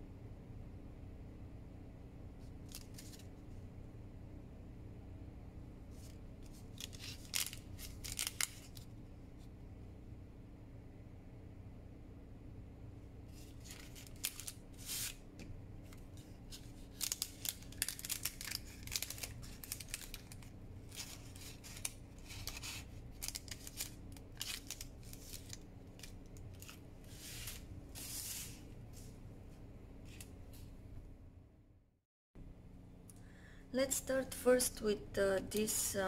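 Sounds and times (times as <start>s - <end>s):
faint low hum: 0.0s - 36.0s
paper envelopes rustling: 2.7s - 3.3s, 6.0s - 8.9s, 13.3s - 15.2s, 15.8s - 28.7s.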